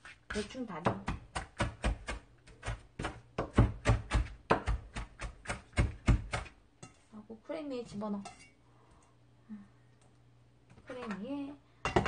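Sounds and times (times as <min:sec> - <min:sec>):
knife chopping on cutting board: 0:00.0 - 0:06.6.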